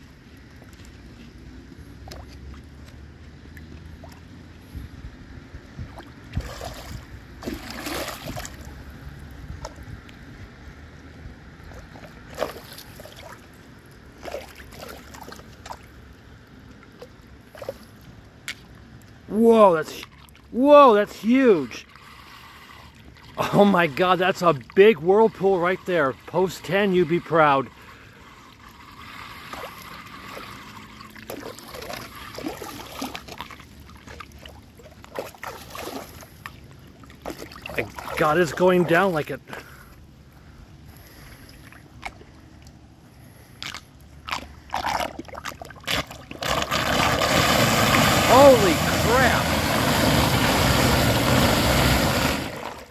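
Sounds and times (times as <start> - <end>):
water splashes: 0.0 - 4.7, 5.6 - 39.9, 41.0 - 52.9
wind rumbling on microphone: 0.0 - 12.4
stick prodding drain with sloshes: 1.9 - 4.4, 5.7 - 16.1, 16.7 - 40.0, 41.0 - 52.9
floodwater swirling down a drain: 5.8 - 9.9, 11.6 - 16.0, 19.1 - 39.8, 43.6 - 52.9.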